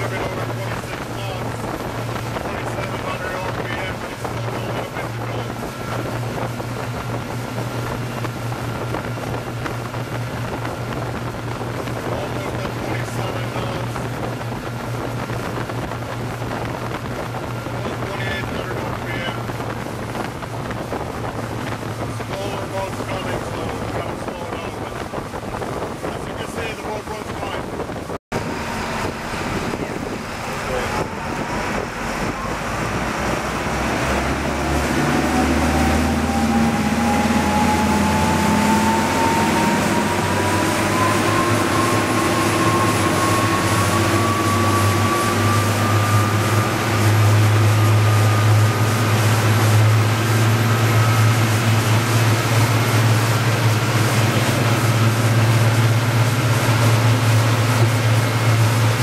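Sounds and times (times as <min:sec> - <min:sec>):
boat diesel engines droning: 0:00.0 - 0:59.0
whine rising in pitch: 0:28.3 - 0:59.0.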